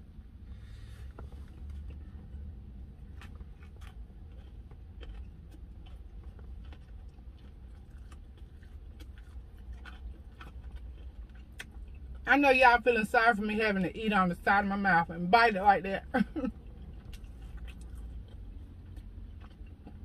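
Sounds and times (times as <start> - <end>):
steady low hum: 0.0 - 20.0
chewing with wet mouth clicks: 1.1 - 12.3, 16.5 - 20.0.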